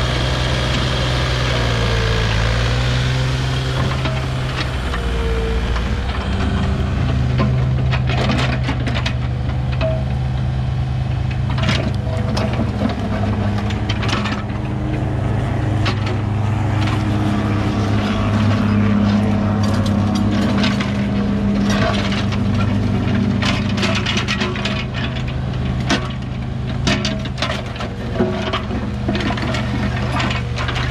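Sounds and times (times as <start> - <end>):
excavator diesel engine running: 0.0 - 30.9
metal knocks and clanks: 3.6 - 10.5.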